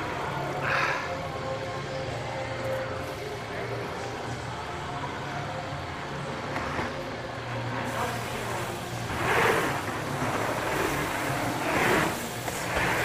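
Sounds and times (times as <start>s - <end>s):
mountain bike tyres rolling: 6.3s - 13.0s.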